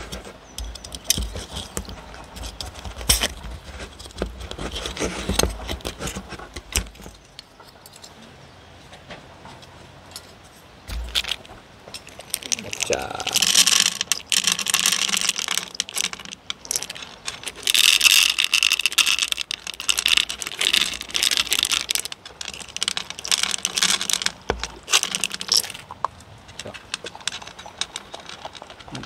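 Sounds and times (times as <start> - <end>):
kibble clattering into wooden bowls: 0.0 - 7.8, 10.9 - 29.0
dog eating kibble: 12.0 - 29.0.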